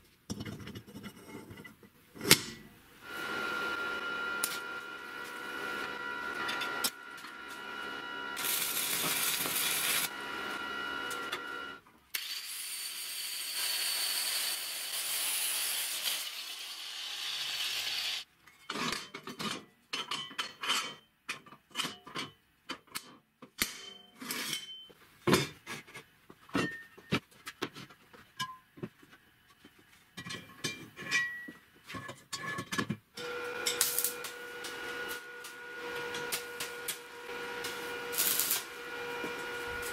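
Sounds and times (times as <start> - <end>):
arc welding hiss: 8.4 - 10.2, 12.2 - 18.2, 33.4 - 39.9.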